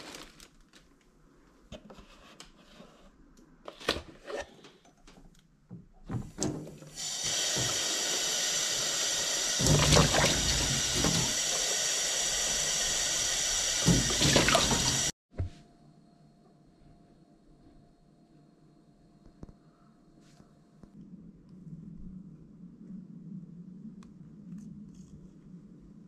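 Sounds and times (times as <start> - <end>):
tap water splashing into carton: 6.1 - 8.2, 9.5 - 11.4, 13.8 - 15.1.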